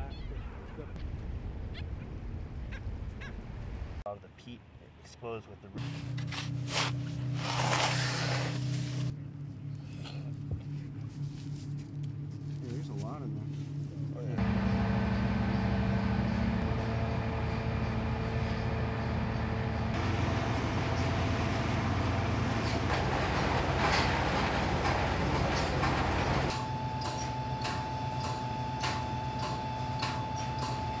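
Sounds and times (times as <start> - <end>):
diesel engine: 5.8 - 31.0
conveyors and hoppers running: 11.2 - 31.0.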